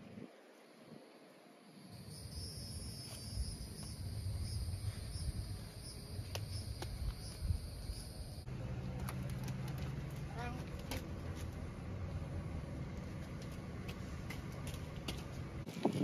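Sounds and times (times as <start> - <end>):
insect trilling: 1.7 - 8.5.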